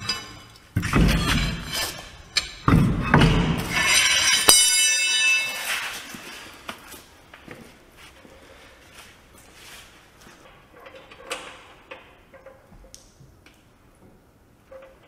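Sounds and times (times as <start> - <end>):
heavy steel wheel thudding and scraping: 0.0 - 6.3.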